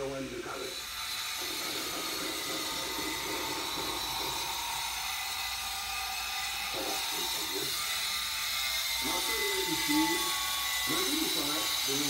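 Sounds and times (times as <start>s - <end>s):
steady television hiss: 0.0s - 5.0s.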